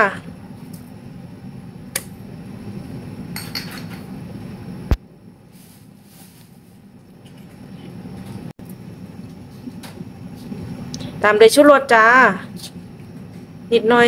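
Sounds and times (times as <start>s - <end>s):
low steady background hum: 0.0s - 14.0s
kitchen utensils and dishes clinking: 3.4s - 4.1s.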